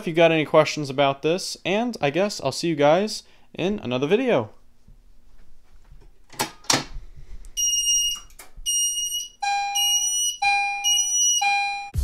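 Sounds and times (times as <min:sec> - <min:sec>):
fire alarm pull station clunks: 0:07.6 - 0:12.0
high-pitched fire alarm pulses: 0:07.6 - 0:12.0.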